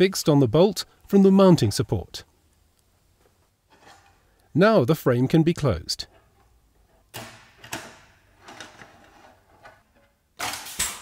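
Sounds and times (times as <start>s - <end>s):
sheet metal scraping and knocking: 3.7s - 4.2s
pneumatic clinching tool firing: 10.4s - 11.0s.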